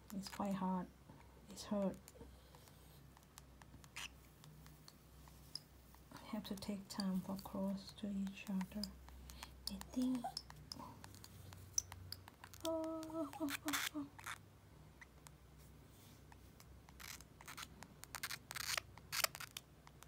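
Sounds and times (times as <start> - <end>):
person humming: 9.7 - 10.8, 12.5 - 14.2.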